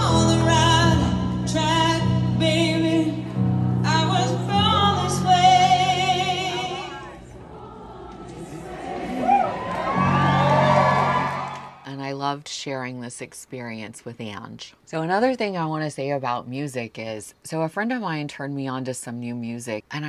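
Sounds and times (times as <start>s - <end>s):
woman singing with vibrato: 0.0s - 7.2s
grand piano: 0.0s - 11.8s.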